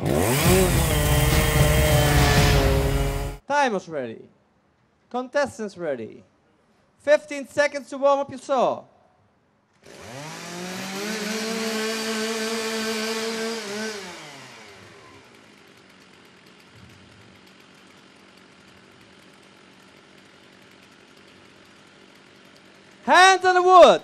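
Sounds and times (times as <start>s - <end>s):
chainsaw revving and idling: 0.0s - 3.4s, 9.8s - 24.0s.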